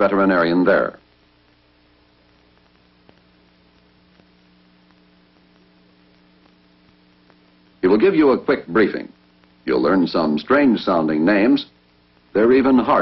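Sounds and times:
faint electrical hum: 0.0s - 13.0s
low hiss: 0.0s - 13.0s
faint ticks: 1.0s - 7.8s.

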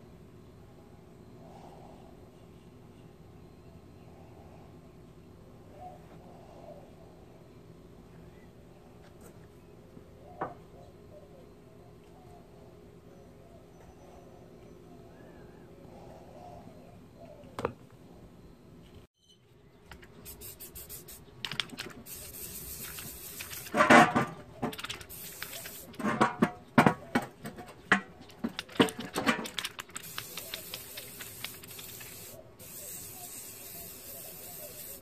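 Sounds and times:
spray paint can hissing: 20.1s - 23.8s, 24.7s - 26.0s, 29.8s - 35.0s.

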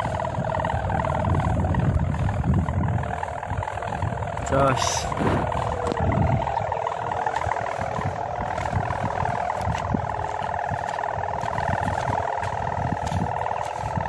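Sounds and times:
kite hummer droning: 0.0s - 14.0s
wind rumble on microphone: 0.0s - 14.0s.

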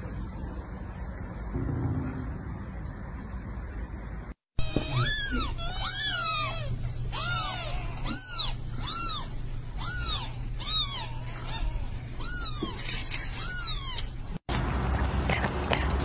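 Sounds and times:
kittens mewing: 4.6s - 14.4s.

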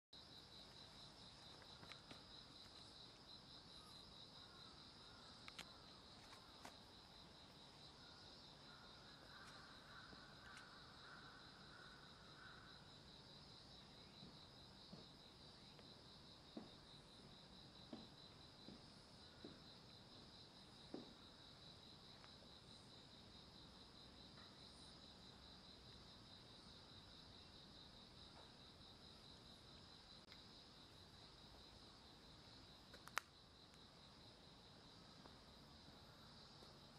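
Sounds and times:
crickets trilling: 0.2s - 36.9s.

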